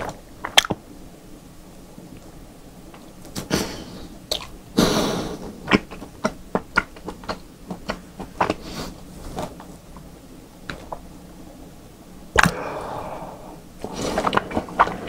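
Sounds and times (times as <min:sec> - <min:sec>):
mouth chewing with wet clicks: 0:04.3 - 0:04.6, 0:05.7 - 0:08.6
forceful breaths: 0:12.4 - 0:15.0.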